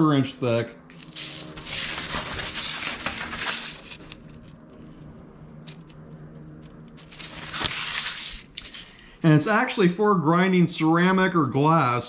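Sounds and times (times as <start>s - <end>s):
faint steady hum: 0.0s - 12.0s
paper rustling: 0.9s - 4.7s, 6.6s - 9.1s.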